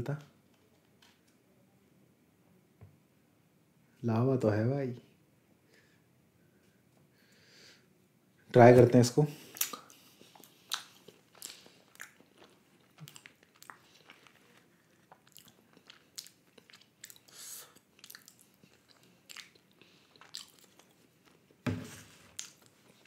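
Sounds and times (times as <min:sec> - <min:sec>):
wet chewing smacks: 0:09.4 - 0:21.6, 0:22.3 - 0:23.0.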